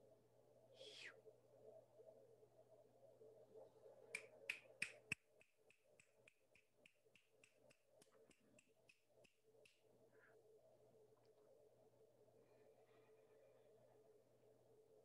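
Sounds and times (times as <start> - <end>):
faint low hum: 0.0 - 15.0
sharp clicks: 4.2 - 9.8.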